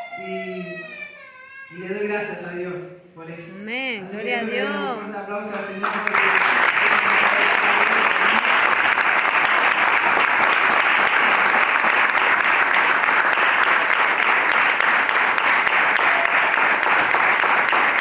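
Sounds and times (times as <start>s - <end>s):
crowd clapping: 5.5s - 18.0s.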